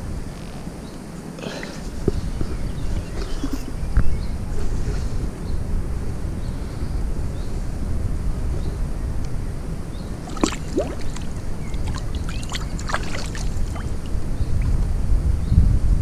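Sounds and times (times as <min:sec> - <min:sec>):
low microphone rumble: 0:00.0 - 0:16.0
shallow water splashing: 0:10.2 - 0:14.7.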